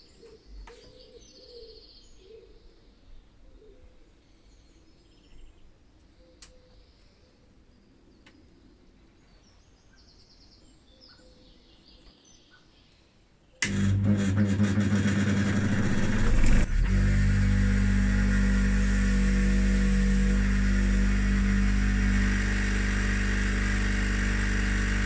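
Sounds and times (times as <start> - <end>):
bench grinder motor hum: 13.6 - 25.0.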